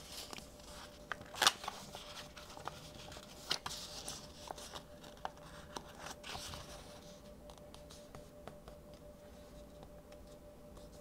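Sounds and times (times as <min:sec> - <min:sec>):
paper crackle: 0:00.0 - 0:07.2
paper rustling being folded: 0:00.0 - 0:08.2.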